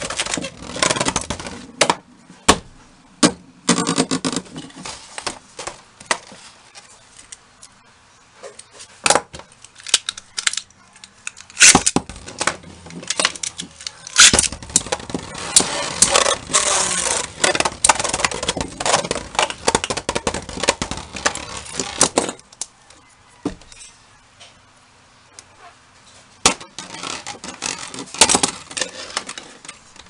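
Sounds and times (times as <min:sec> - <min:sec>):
rattling scrape: 0:12.2 - 0:19.8, 0:26.7 - 0:29.8
spinning tops whirring and grinding: 0:12.2 - 0:22.0.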